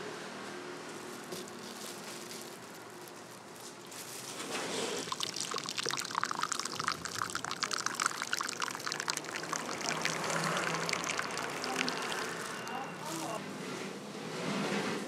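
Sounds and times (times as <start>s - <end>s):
liquid pouring into mug: 4.6s - 13.4s.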